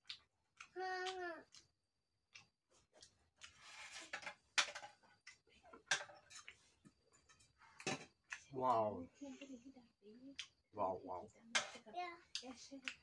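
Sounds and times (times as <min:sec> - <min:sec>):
chewing and lip smacks: 0:00.0 - 0:03.7.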